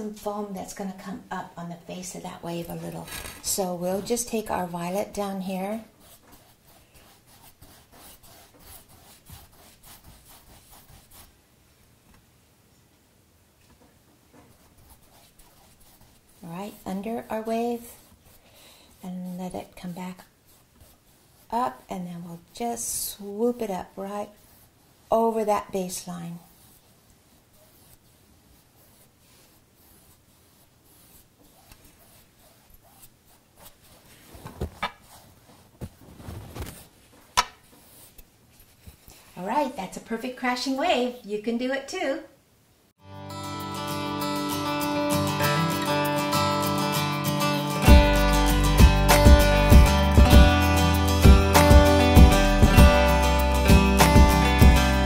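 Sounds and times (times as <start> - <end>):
paintbrush scrubbing on canvas: 2.2 - 11.4, 14.4 - 39.8.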